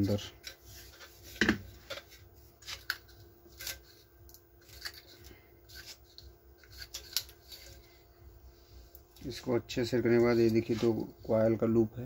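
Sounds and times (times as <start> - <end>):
paper crinkling: 0.4 - 8.0.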